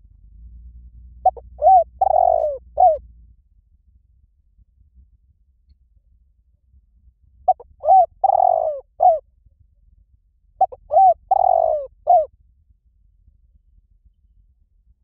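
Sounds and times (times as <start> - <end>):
dove cooing: 1.2 - 3.0, 7.5 - 9.2, 10.6 - 12.3.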